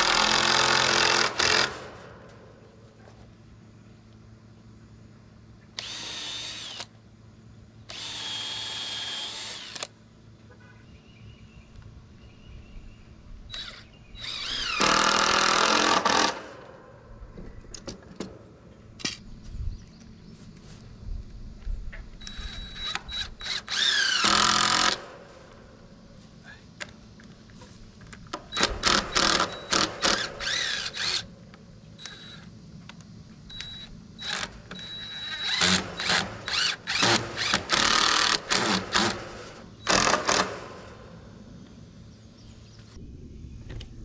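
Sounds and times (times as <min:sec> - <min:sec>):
cordless drill driving screws: 0:05.8 - 0:06.9, 0:07.9 - 0:09.9, 0:13.5 - 0:16.4, 0:22.2 - 0:25.0, 0:28.5 - 0:31.3, 0:33.5 - 0:40.6.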